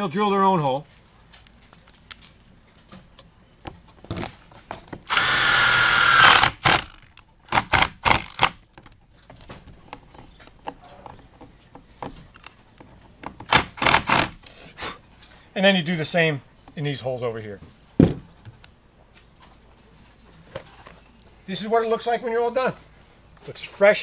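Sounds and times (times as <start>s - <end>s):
power drill whining: 5.1s - 7.0s.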